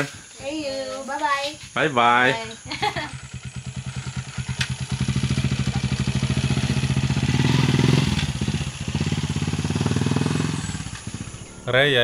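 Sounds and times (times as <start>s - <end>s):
vehicle engine revving: 3.2s - 12.0s.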